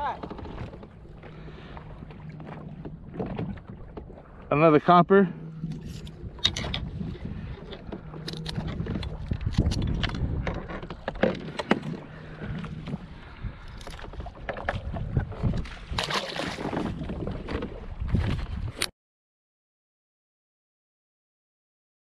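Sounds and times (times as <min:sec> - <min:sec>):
low rumble of wind and water: 0:00.0 - 0:18.9
water splash: 0:15.5 - 0:18.4.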